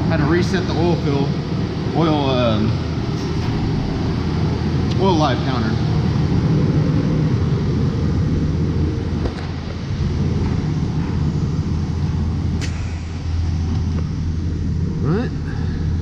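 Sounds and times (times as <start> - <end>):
car engine idling: 1.0 - 6.7
sharp click: 12.6 - 14.1.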